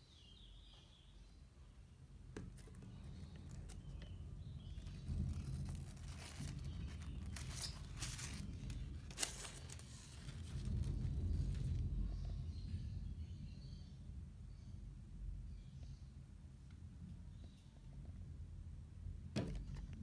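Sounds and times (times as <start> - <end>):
protective sheet peeling crackling: 2.5 - 11.9
low handling rumble: 3.0 - 13.7.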